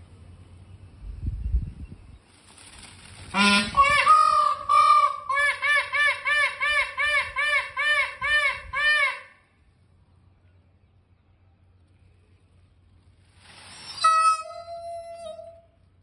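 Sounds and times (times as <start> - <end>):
peacock calling: 2.6 - 9.6, 13.4 - 15.9.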